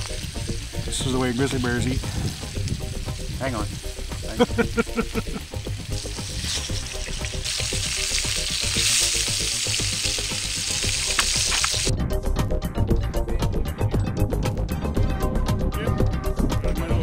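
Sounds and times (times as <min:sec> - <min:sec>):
fish sizzling in hot fat: 0:00.0 - 0:11.9.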